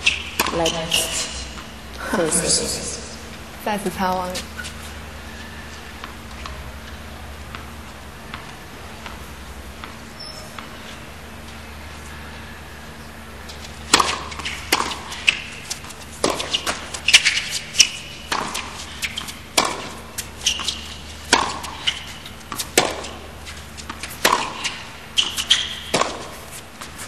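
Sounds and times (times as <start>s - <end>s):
racket hitting tennis ball: 0.0s - 2.4s, 13.5s - 27.0s
tennis ball bouncing: 0.0s - 2.4s, 8.3s - 10.0s, 13.5s - 27.0s.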